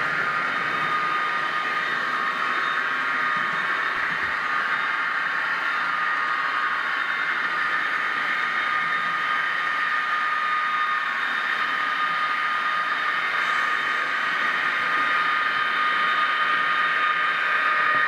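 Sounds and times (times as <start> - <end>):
model train motor whining: 0.0 - 18.0
wheels hissing on track: 0.0 - 18.0.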